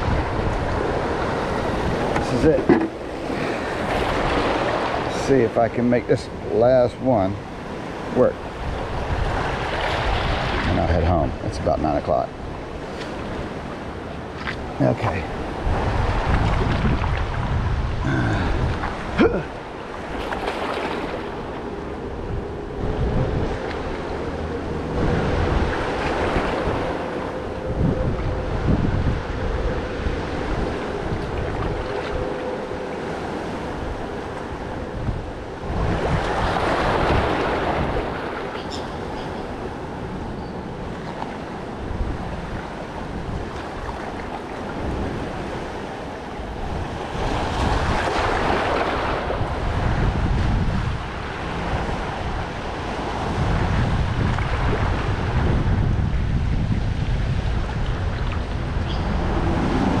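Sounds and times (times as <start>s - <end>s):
water washing in: 0.0s - 5.3s
wind buffeting microphone: 0.0s - 60.0s.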